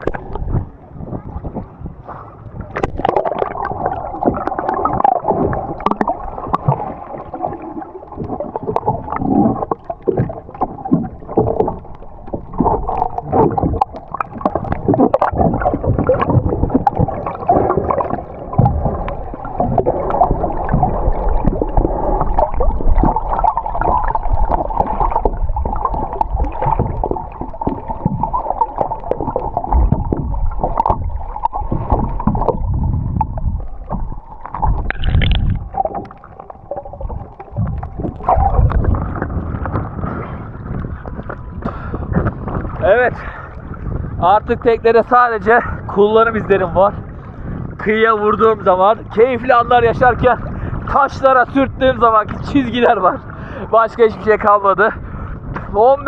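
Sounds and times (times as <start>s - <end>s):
muffled underwater water gurgling: 0.0s - 56.0s.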